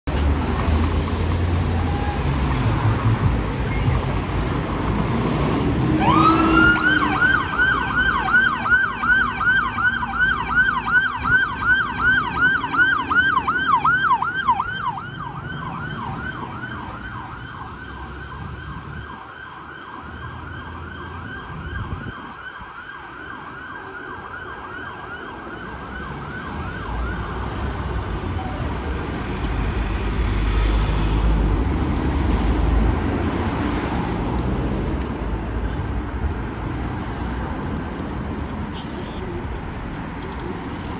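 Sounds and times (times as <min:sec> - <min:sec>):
road traffic noise: 0:00.0 - 0:40.9
fire engine siren yelping: 0:05.9 - 0:29.1.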